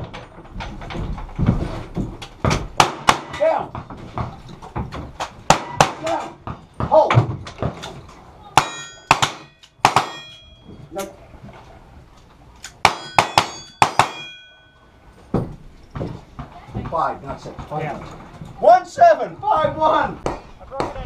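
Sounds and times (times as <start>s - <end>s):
gunshots: 2.8s - 3.4s, 5.5s - 6.2s, 8.6s - 10.3s
steel target ringing clang: 8.6s - 10.7s, 12.8s - 14.9s.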